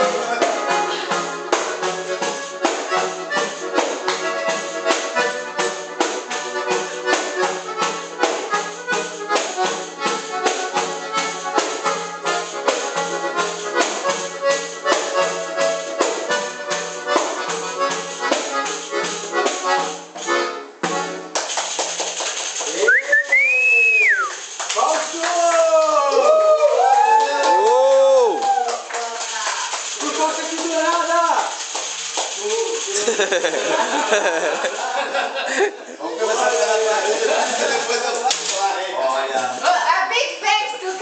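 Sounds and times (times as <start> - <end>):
accordion playing: 0.0 - 21.6
quick percussion beat: 0.0 - 23.5, 24.2 - 25.9, 27.5 - 35.2.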